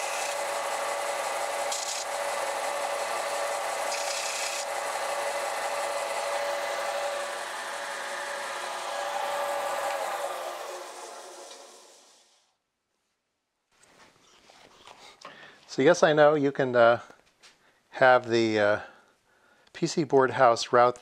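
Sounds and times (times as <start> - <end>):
belt sander running: 0.0 - 12.3.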